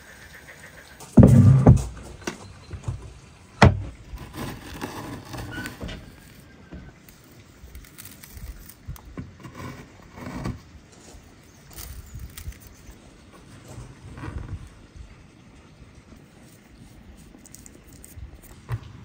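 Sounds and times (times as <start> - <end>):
salt being scooped and sprinkled: 16.2 - 18.6.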